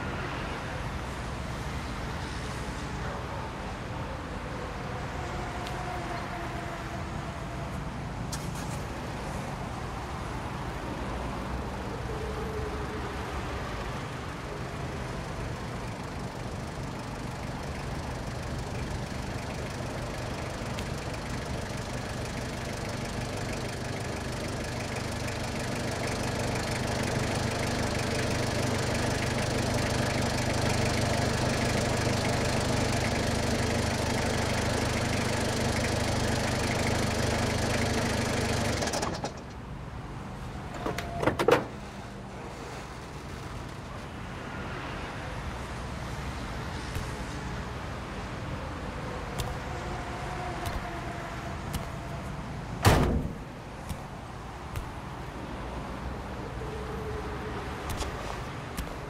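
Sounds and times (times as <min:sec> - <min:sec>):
van engine running: 0:13.9 - 0:44.1.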